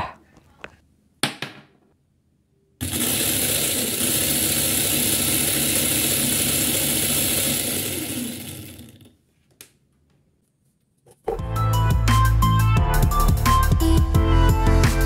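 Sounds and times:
electric motor whirring: 0:02.8 - 0:09.1.

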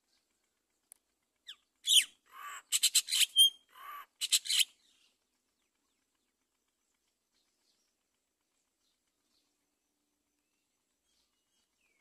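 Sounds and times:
harsh raspy bird chattering: 0:01.5 - 0:04.7.

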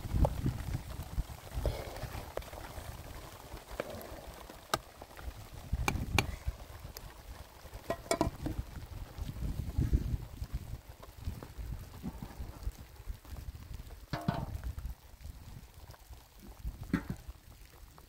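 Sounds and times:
wind rumble on microphone: 0:00.0 - 0:18.0
ladle stirring a pot: 0:07.8 - 0:08.5.

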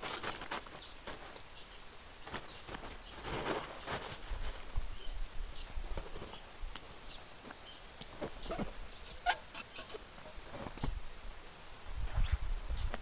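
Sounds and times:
fabric rustling: 0:02.2 - 0:05.0.

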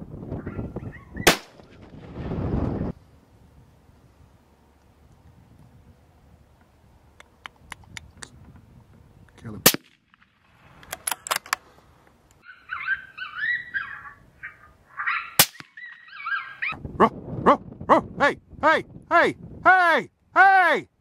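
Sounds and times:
animal yelping: 0:00.4 - 0:01.3, 0:12.4 - 0:16.8
gunshots: 0:01.3 - 0:01.6, 0:09.6 - 0:10.4, 0:15.4 - 0:15.8.

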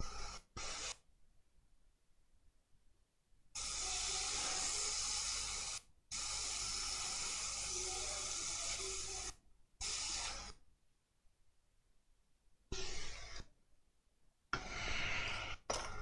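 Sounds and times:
hot air station hissing: 0:03.6 - 0:10.6.

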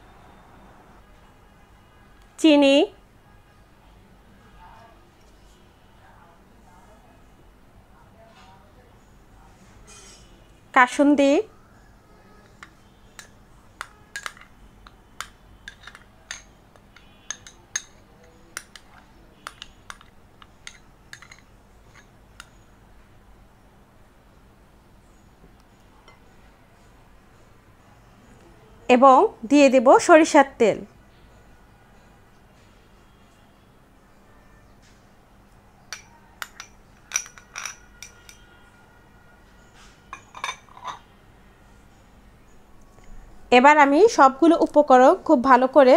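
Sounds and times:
metal spoon clinking on glass bowl: 0:12.4 - 0:22.6, 0:26.0 - 0:26.4, 0:35.9 - 0:38.5, 0:40.1 - 0:41.1.

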